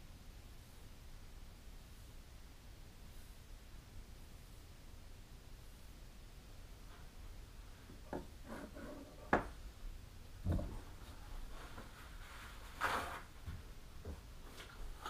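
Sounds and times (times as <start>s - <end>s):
dull thump: 10.4s - 10.9s.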